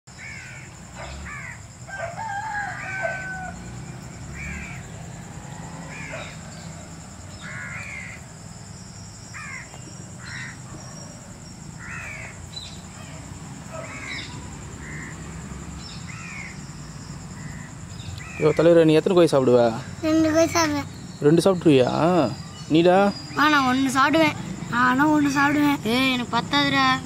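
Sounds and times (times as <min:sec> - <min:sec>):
crows cawing: 0:00.2 - 0:03.7, 0:04.3 - 0:04.9, 0:05.5 - 0:06.5, 0:07.3 - 0:08.2, 0:09.3 - 0:10.7, 0:11.8 - 0:15.3, 0:16.0 - 0:16.6, 0:17.4 - 0:18.8, 0:25.2 - 0:25.9.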